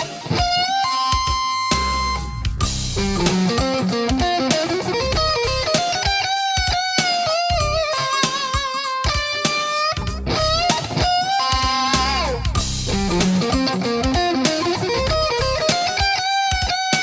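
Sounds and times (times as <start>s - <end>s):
electric guitar lead lick: 0.0s - 17.0s.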